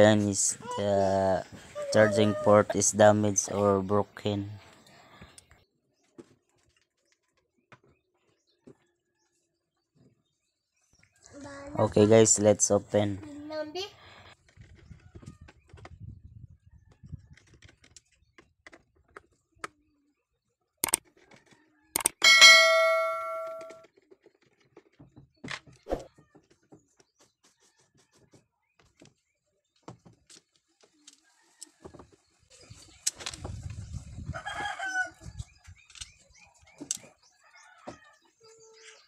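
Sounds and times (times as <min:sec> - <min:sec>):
sharp clicks: 0:22.0 - 0:22.3
bell ding: 0:22.2 - 0:23.8.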